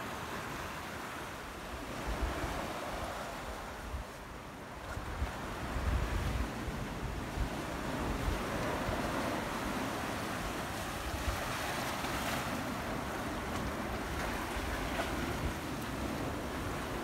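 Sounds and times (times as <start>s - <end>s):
sea waves washing among boulders: 0.0s - 17.0s
wind buffeting microphone: 4.8s - 17.0s.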